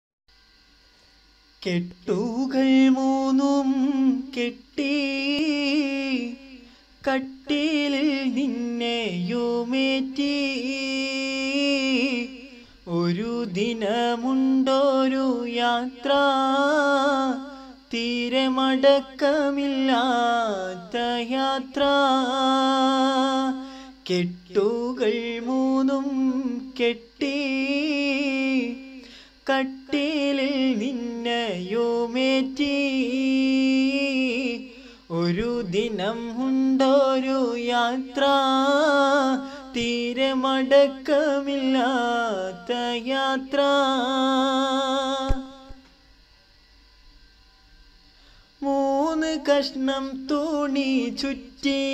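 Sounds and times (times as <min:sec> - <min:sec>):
man singing unaccompanied: 0:01.6 - 0:45.9, 0:48.6 - 0:51.9.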